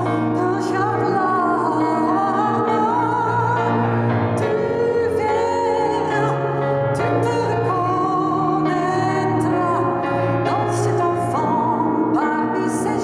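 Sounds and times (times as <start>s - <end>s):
keyboard piano: 0.0s - 13.0s
woman singing into a microphone: 0.0s - 13.0s.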